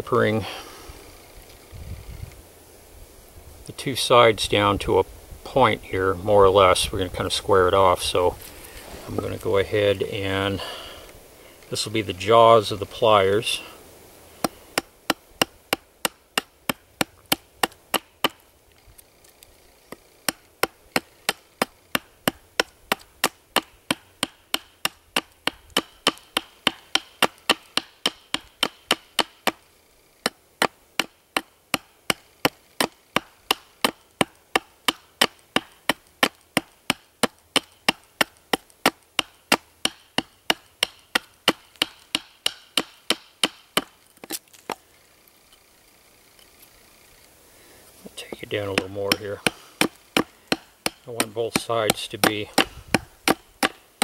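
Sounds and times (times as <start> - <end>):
knife chopping wood: 14.4 - 18.4, 19.9 - 29.6, 30.2 - 44.8, 48.2 - 54.0.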